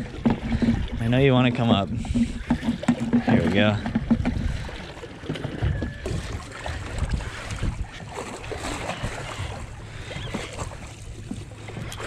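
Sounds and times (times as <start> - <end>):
water slapping against boat hull: 0.0 - 12.0
wind buffeting microphone: 0.0 - 12.0.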